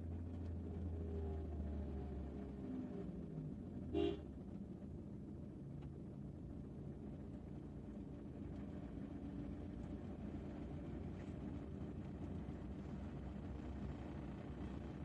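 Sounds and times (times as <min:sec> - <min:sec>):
car horn toot: 0:04.0 - 0:04.2.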